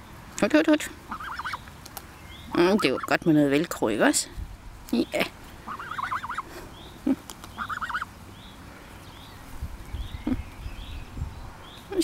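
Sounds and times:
goose warbling trills: 1.1 - 1.6, 5.7 - 6.4, 7.6 - 8.1.

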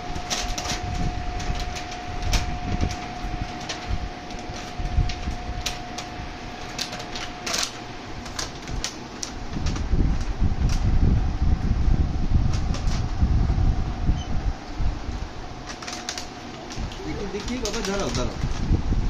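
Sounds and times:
packaging tearing and crinkling: 0.1 - 10.9, 15.6 - 18.7.

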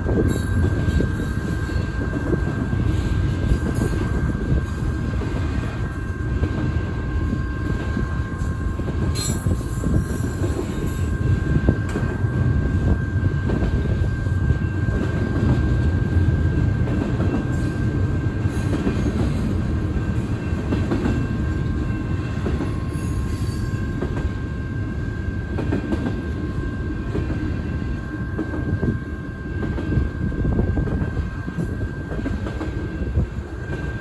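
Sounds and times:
high ringing from wheels: 0.0 - 11.7, 17.4 - 25.4
train wheels rumbling on rail: 0.0 - 34.0.

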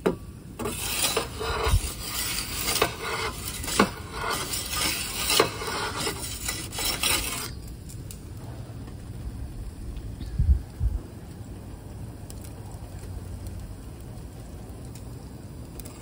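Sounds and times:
metal peel scraping on stone: 0.6 - 7.6.

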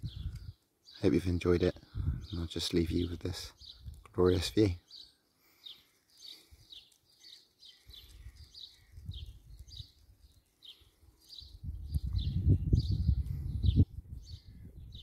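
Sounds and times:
wind on microphone: 0.0 - 0.6, 1.9 - 2.3, 8.1 - 10.0, 11.4 - 15.0
small bird chirping: 0.0 - 15.0.

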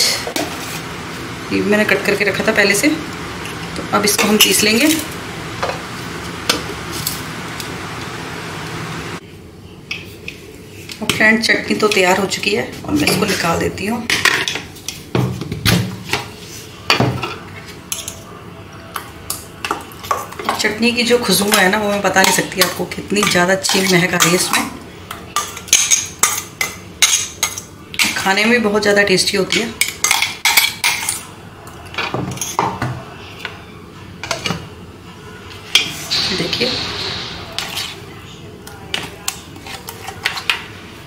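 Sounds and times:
kitchen utensils clinking: 19.7 - 28.5.

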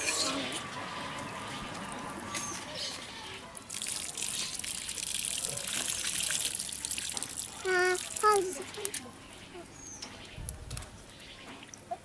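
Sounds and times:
water pouring onto ground: 3.6 - 9.1.

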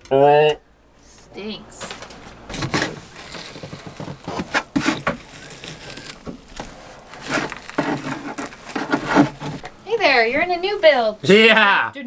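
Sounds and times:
chisel scraping foam: 2.5 - 9.7.

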